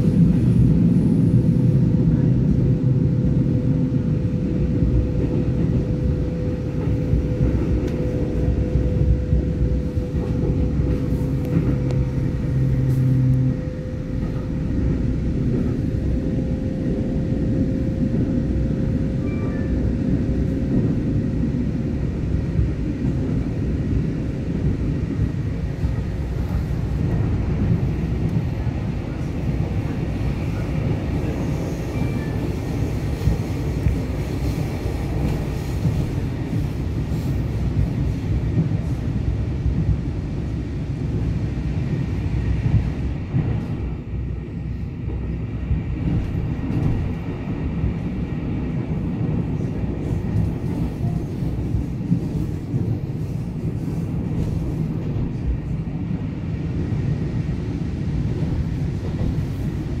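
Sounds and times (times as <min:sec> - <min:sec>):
train wheels rumbling: 0:00.0 - 1:00.0.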